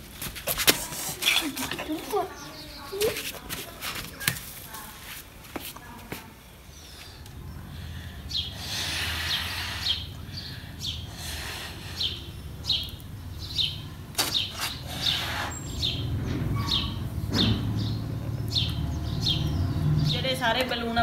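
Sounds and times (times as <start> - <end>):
small bird chirping: 8.3 - 20.3.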